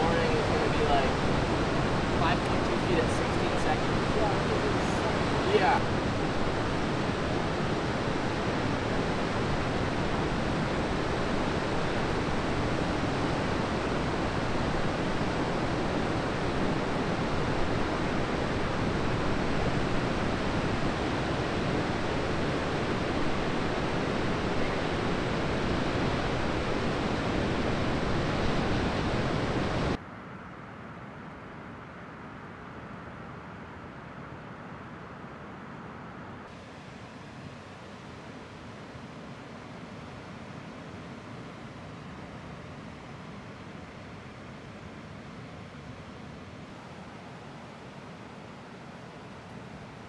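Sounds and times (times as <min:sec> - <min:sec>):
ocean surf breaking: 0:00.0 - 0:30.0.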